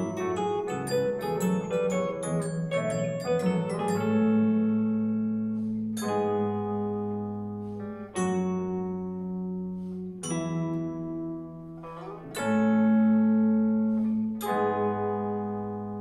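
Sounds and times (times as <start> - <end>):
clean electric guitar band music: 0.0 - 16.0.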